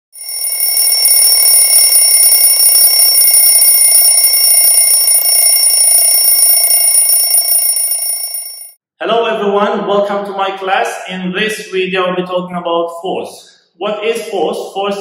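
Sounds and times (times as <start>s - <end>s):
electric bell ringing: 0.2s - 8.8s.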